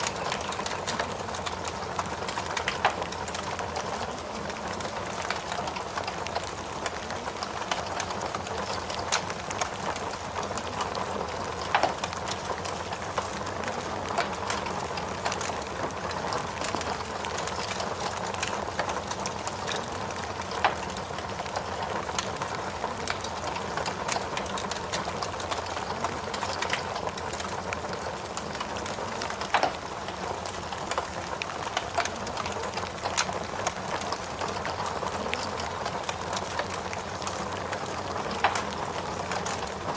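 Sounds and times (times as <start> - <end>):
rain falling steadily: 0.0 - 39.9
wood fire crackling and popping: 0.0 - 39.9.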